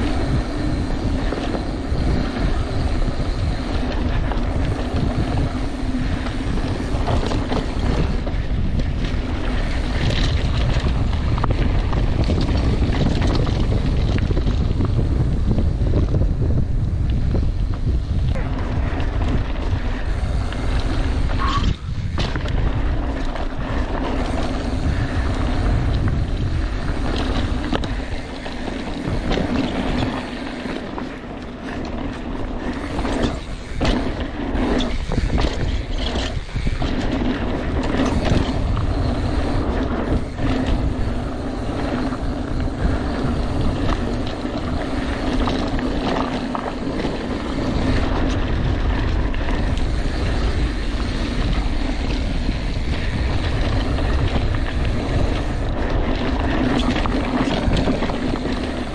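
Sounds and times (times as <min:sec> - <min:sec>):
bike squeaking: 0:00.0 - 0:13.8, 0:17.6 - 0:58.9
bike tyre noise: 0:00.0 - 0:58.9
wind on microphone: 0:00.0 - 0:58.9.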